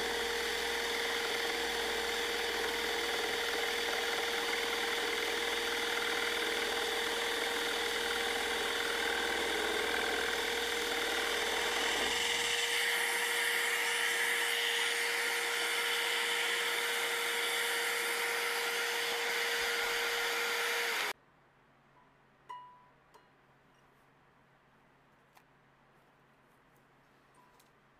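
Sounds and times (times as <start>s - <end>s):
saw blade cutting wood: 0.0s - 21.2s
scroll saw running: 0.0s - 21.2s.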